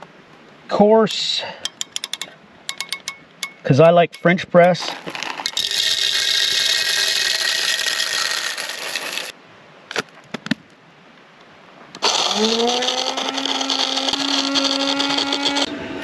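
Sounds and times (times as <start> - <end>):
coffee grinder grinding beans: 4.9 - 9.3, 12.0 - 15.8
motor humming: 5.6 - 9.3, 12.0 - 16.0.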